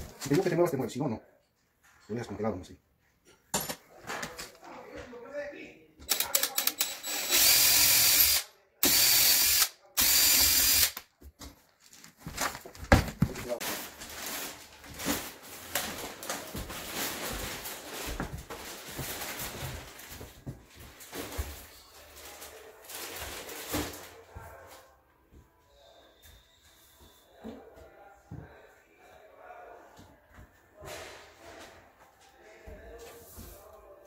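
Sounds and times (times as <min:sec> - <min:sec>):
cordless drill boring wood: 0:06.1 - 0:11.0.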